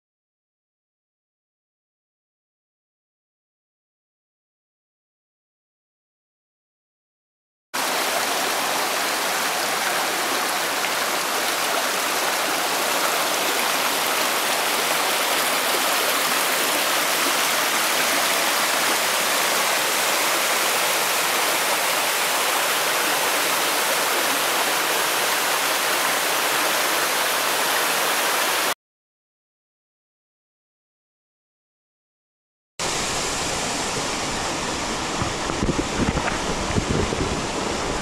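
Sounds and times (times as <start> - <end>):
stream rushing over boulders: 7.8 - 28.8, 32.8 - 38.0.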